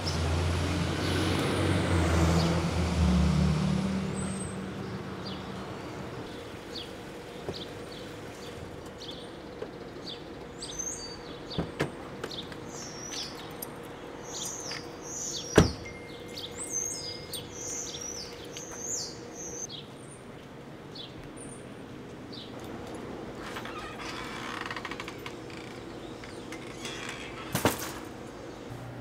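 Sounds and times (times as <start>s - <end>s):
small birds chirping: 4.2s - 22.6s
car door shutting: 15.5s - 15.8s.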